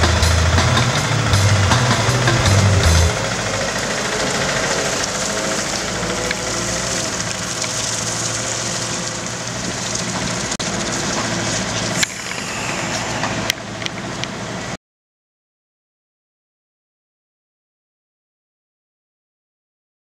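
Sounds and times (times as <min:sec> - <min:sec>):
forklift diesel engine running: 0:00.0 - 0:14.8.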